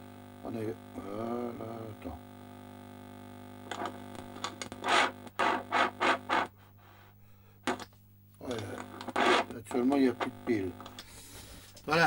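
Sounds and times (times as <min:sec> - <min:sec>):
scratchy crackling radio bursts: 0:02.2 - 0:07.0, 0:08.6 - 0:11.0.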